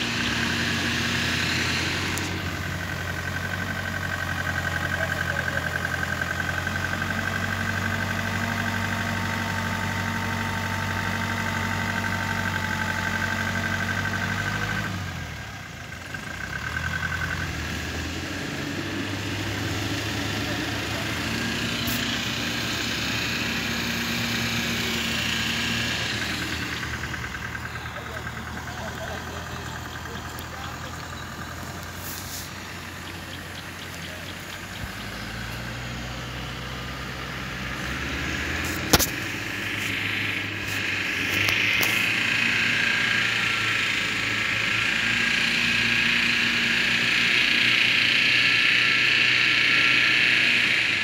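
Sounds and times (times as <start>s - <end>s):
off-road vehicle engine running: 0.0s - 51.0s.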